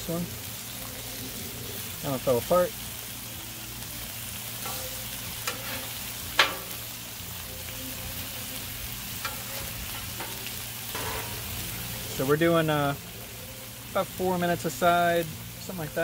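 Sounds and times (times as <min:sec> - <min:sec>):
fish sizzling in oil: 0:00.0 - 0:16.0
metal spatula scraping griddle: 0:04.6 - 0:06.9, 0:09.2 - 0:12.2.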